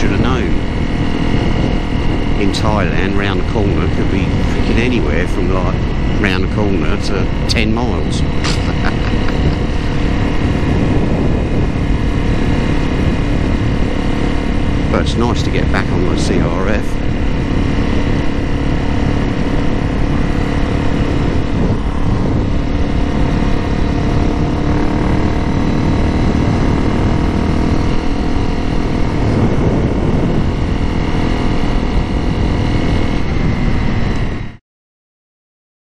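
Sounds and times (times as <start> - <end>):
motorcycle engine running: 0.0 - 34.6
wind rumbling over microphone: 0.0 - 34.6.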